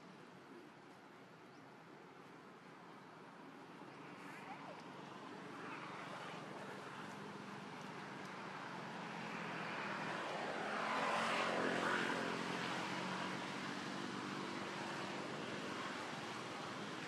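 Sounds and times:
engine passing by: 5.5 - 17.0.

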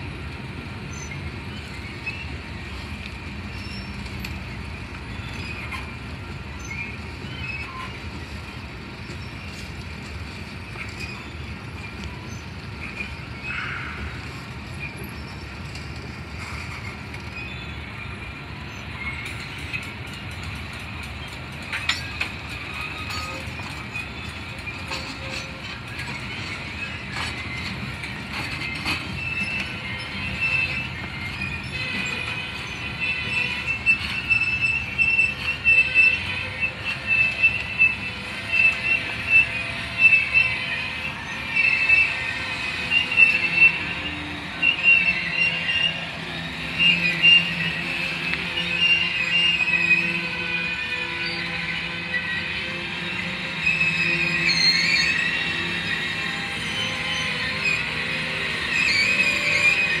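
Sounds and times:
freight train rolling past: 0.0 - 60.0
steel wheels squealing: 0.0 - 60.0.

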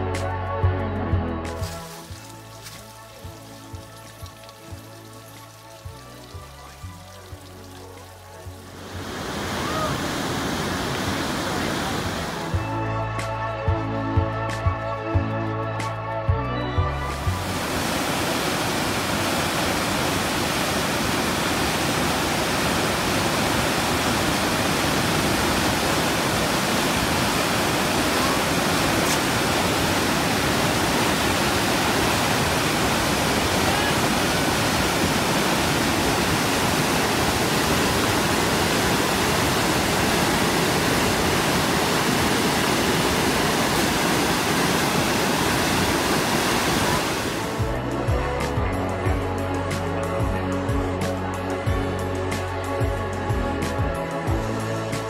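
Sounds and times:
whitewater rushing over rocks: 1.6 - 12.6, 17.2 - 47.7.

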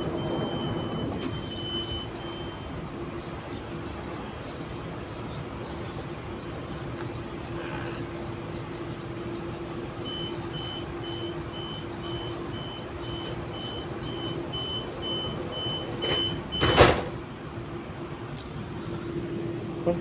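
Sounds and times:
sliding doors shutting with thump: 15.7 - 17.2.

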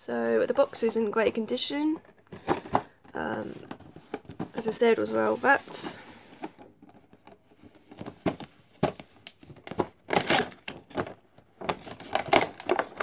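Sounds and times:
packaging crinkling and clicking: 2.1 - 4.6, 6.3 - 13.0.

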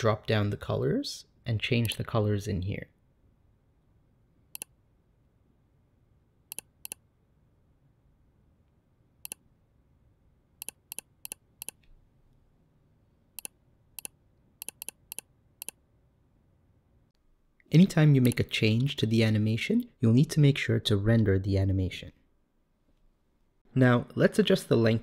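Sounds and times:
computer mouse clicking: 4.5 - 4.8, 6.5 - 7.0, 10.6 - 11.9, 13.4 - 15.8.

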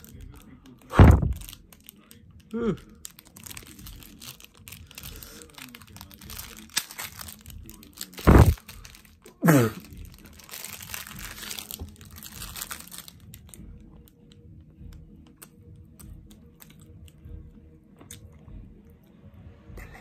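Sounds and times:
plastic wrapper crinkling: 0.0 - 13.6.

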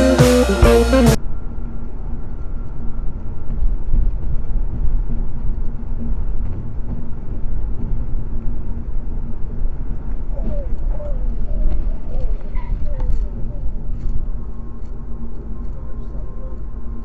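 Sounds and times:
rock guitar music: 0.0 - 1.2
muffled car road rumble: 1.1 - 17.0.

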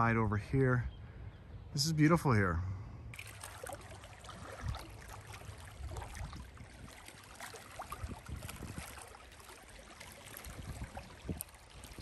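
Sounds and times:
small waves lapping: 1.0 - 12.0
little splashes: 3.1 - 12.0
wind on microphone: 4.2 - 12.0.

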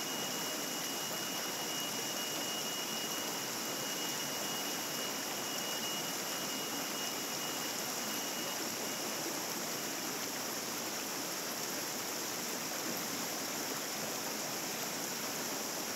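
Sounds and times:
stream flowing over stones: 0.0 - 15.9.

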